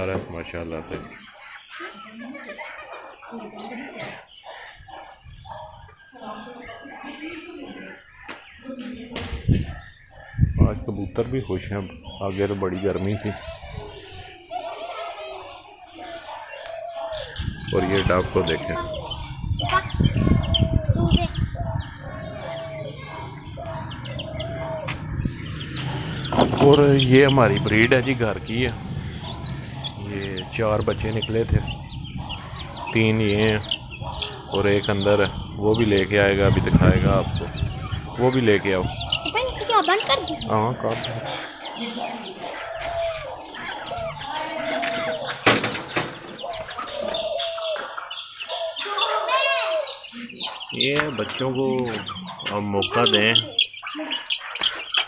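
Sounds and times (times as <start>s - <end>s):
chickens and doves calling: 0.0s - 55.0s
high bird chirps: 1.0s - 55.0s
low rumbling noise: 17.4s - 41.6s.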